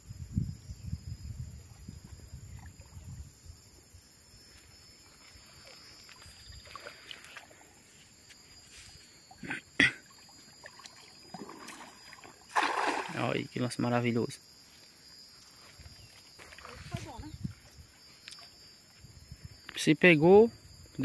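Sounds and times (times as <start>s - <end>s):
net splashing into water: 10.6s - 13.4s.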